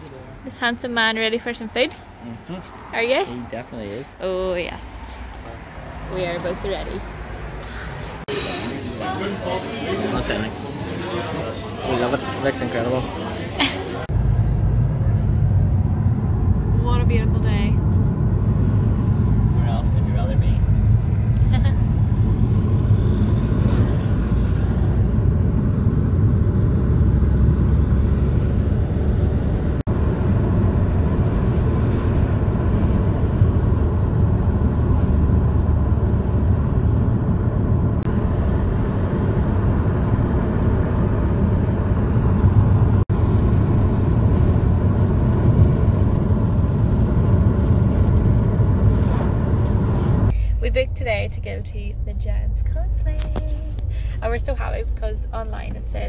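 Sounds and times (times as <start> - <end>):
car engine and tyre rumble: 0.0 - 8.3, 9.8 - 56.0.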